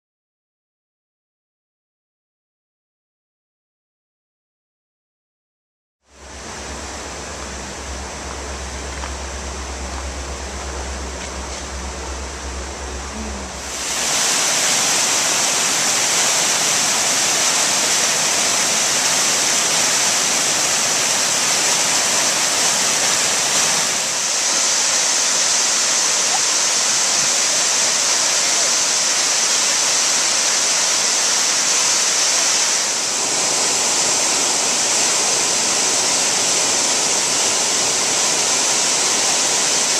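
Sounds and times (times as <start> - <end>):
steady low rumble: 6.1 - 16.4
waterfall rushing over rock: 6.2 - 39.9.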